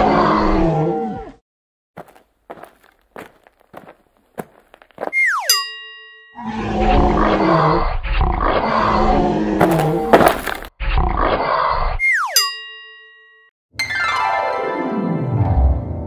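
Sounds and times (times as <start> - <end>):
tiger roaring: 6.4 - 11.8.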